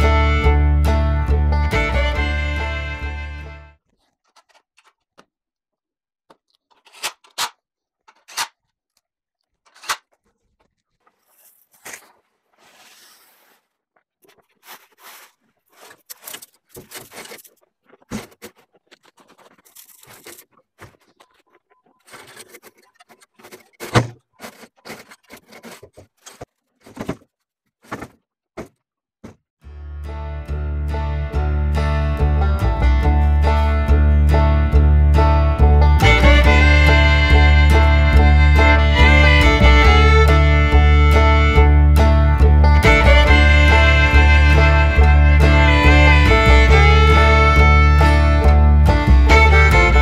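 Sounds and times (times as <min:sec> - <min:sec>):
rustling noise: 0:09.8 - 0:28.2.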